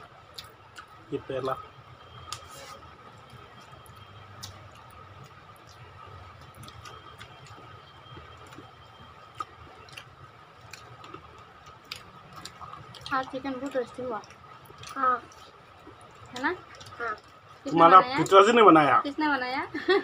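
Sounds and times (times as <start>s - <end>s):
chewing smacks: 0.3s - 1.0s, 3.2s - 18.4s.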